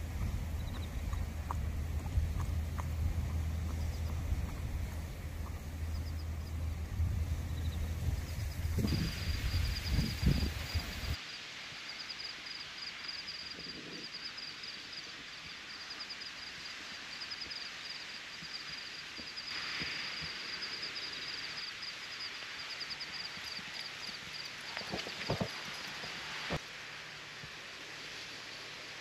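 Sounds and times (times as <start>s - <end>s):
wind rumbling on microphone: 0.0s - 11.2s.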